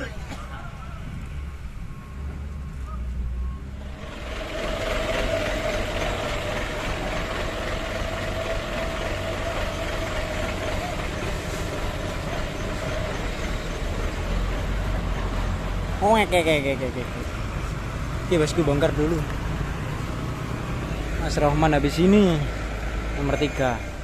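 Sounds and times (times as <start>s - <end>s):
truck diesel engine whining: 0.0s - 24.0s.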